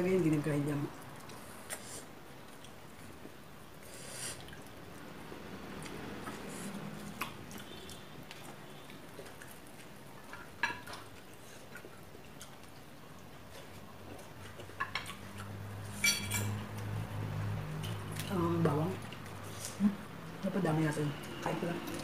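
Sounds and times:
cutlery clinking on ceramic plates: 15.9s - 16.6s.

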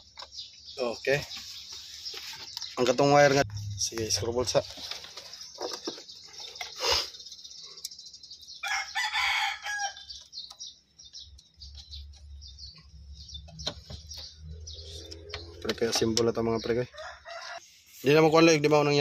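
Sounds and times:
rooster crowing: 8.6s - 10.1s, 16.9s - 17.6s.

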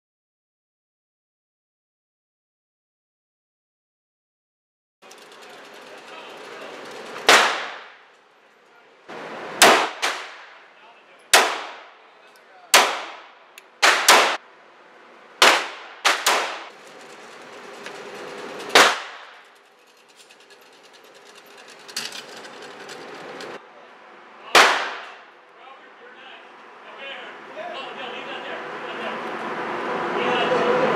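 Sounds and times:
gunshots echoing indoors: 9.6s - 10.6s, 11.4s - 11.9s, 12.8s - 14.4s, 15.4s - 16.6s.

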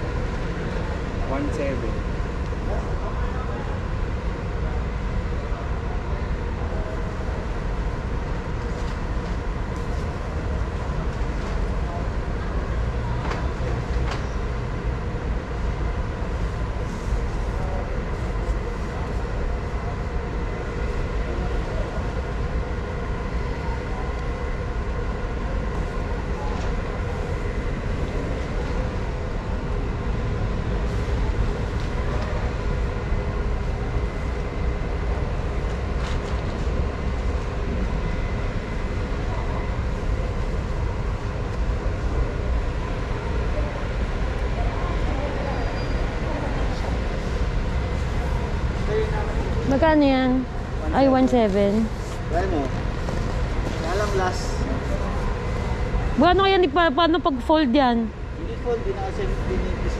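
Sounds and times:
faint voices: 0.0s - 59.9s.

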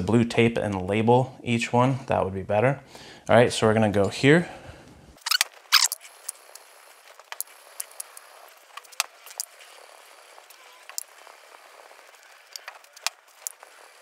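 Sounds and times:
aerosol can spraying: 5.8s - 14.0s.

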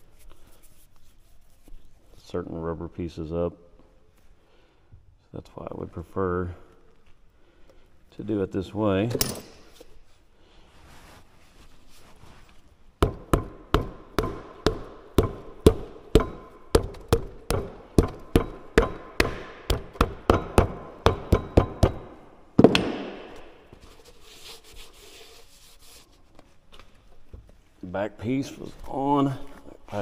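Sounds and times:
faint rubbing: 9.9s - 12.9s, 23.7s - 26.7s
hammer tapping with metallic ring: 13.0s - 22.2s.

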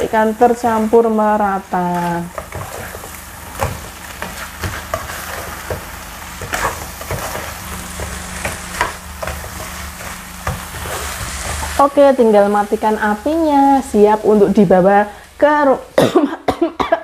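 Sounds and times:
fish sizzling in a wok: 0.0s - 16.5s
spatula scraping a wok: 1.8s - 12.0s.

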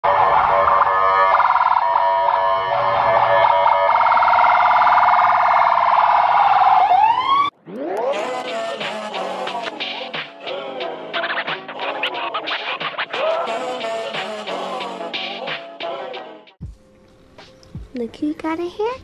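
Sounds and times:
warbling siren wail: 0.0s - 10.1s
music: 8.1s - 19.0s.

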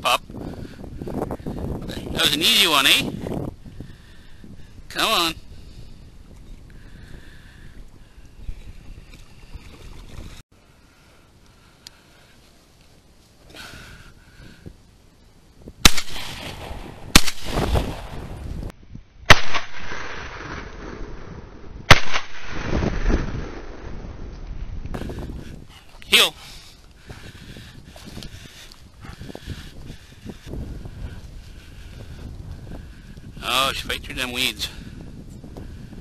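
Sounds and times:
shotgun shots: 15.8s - 18.2s, 19.3s - 21.0s, 21.9s - 23.7s.

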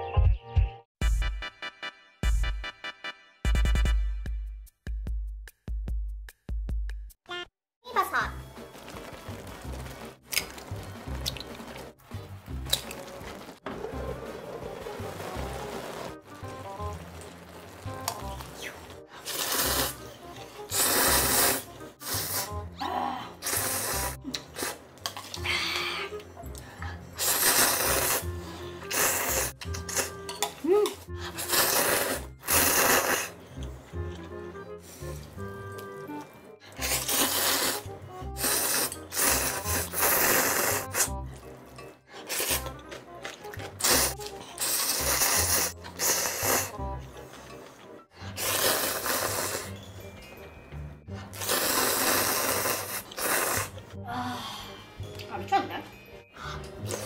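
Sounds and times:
background music with beat: 0.0s - 7.2s
background music: 0.0s - 57.0s
wet noodle slurping: 12.6s - 22.6s, 23.4s - 25.4s, 27.2s - 30.2s, 31.2s - 33.7s, 36.7s - 49.9s, 51.1s - 53.9s, 56.6s - 57.0s.

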